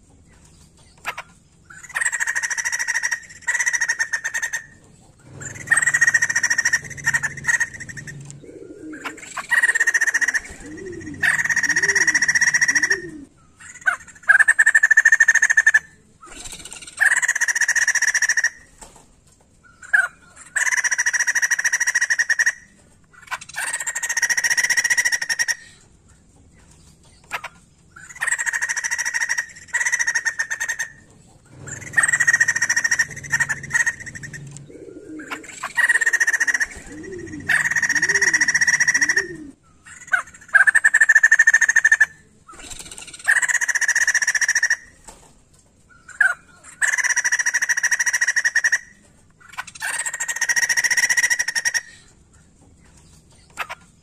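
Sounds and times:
bird buzzy chattering calls: 1.0 - 18.8, 27.3 - 45.1, 46.0 - 52.1.

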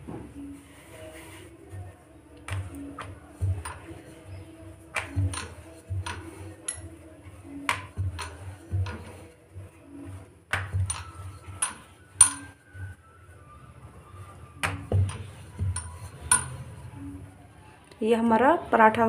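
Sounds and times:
rolling pin knocking on board: 4.9 - 6.4, 7.6 - 9.1, 10.5 - 12.4.

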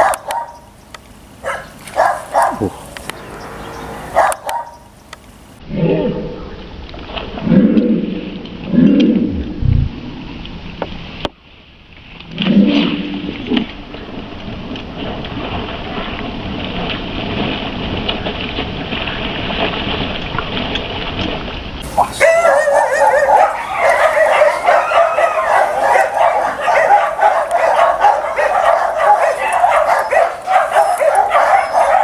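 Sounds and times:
steady rushing noise: 9.2 - 11.3
dog whining and yipping: 22.1 - 32.0.

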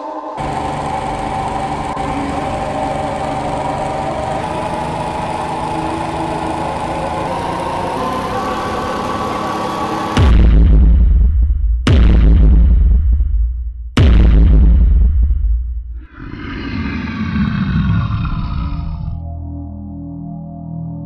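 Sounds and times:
drone of held tones: 0.0 - 10.2.

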